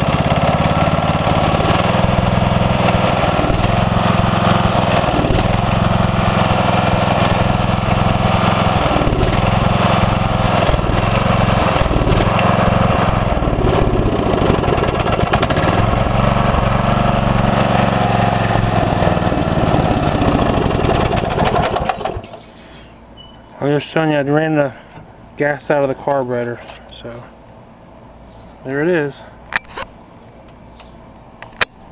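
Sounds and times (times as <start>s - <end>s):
single-cylinder engine sputtering: 0.0s - 22.6s.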